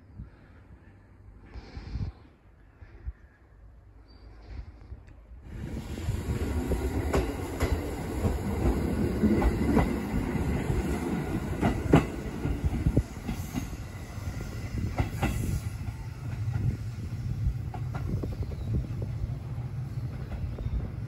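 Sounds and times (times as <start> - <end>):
train running rumble: 5.4 - 21.0
train wheels clicking over rail joints: 6.5 - 14.0, 14.8 - 16.8.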